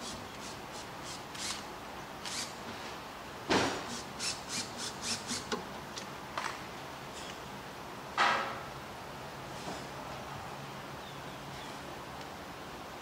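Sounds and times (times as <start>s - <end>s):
ratchet rasping clicks: 3.9s - 5.6s.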